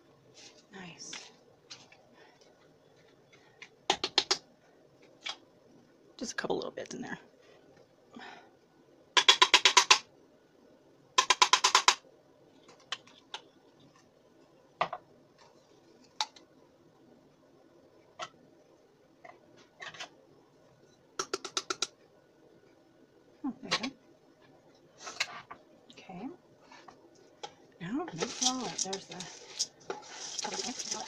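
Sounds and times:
spice shaker rattling: 28.2s - 31.0s.

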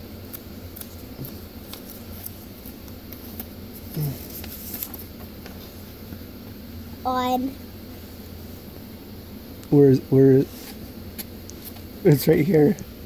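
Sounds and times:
book pages rustling: 0.3s - 5.8s
low vocal murmur: 3.9s - 4.4s.

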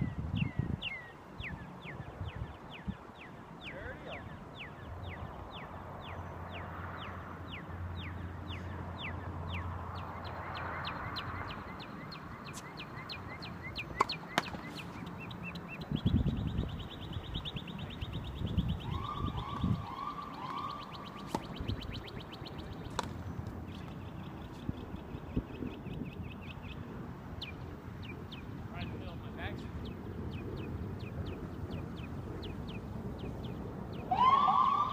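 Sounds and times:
tennis balls being struck: 13.8s - 15.0s, 20.5s - 21.8s, 22.8s - 23.2s.

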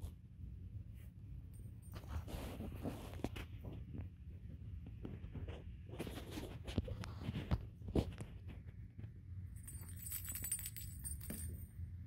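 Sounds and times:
kittens scuffling with toys: 1.0s - 4.2s, 4.8s - 8.9s
bell in rolling ball toy: 9.5s - 12.0s.

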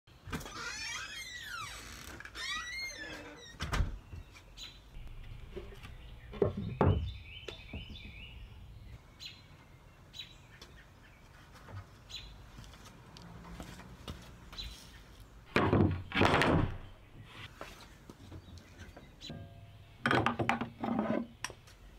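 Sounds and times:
birds chirping: 0.5s - 13.1s, 14.2s - 15.6s, 16.6s - 21.9s
wooden boards knocking: 15.5s - 16.8s, 20.0s - 20.8s.

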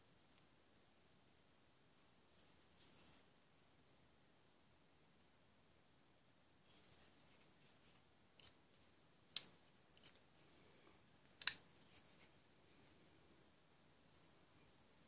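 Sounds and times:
knife handling ticks and rubbing: 7.0s - 8.6s, 9.3s - 10.4s, 11.2s - 12.4s.

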